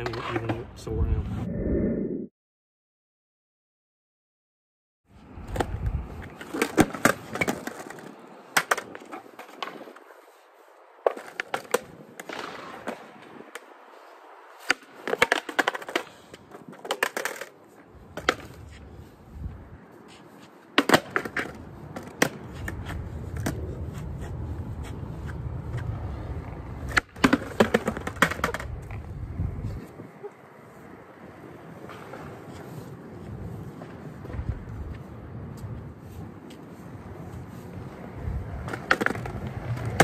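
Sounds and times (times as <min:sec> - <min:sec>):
skateboard wheels rolling: 0:05.1 - 0:40.0
skateboard cracks and clatters: 0:05.4 - 0:10.3, 0:11.0 - 0:13.8, 0:14.6 - 0:18.8, 0:20.5 - 0:24.0, 0:25.3 - 0:29.0, 0:37.9 - 0:40.0.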